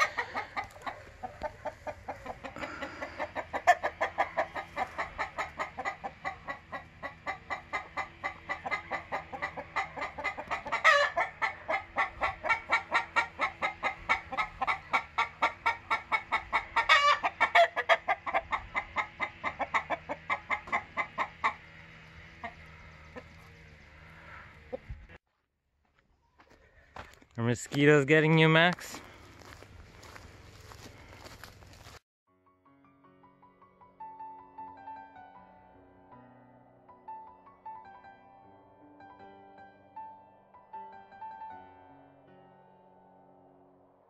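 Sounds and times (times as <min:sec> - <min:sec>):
chicken rising call: 0:00.0 - 0:21.7
chickens clucking: 0:00.0 - 0:25.2.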